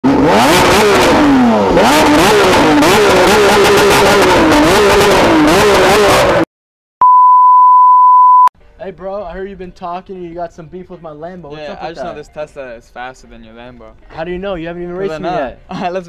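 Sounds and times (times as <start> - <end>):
car engine revving: 0.0 - 6.4
loud test-tone beep: 7.0 - 8.5.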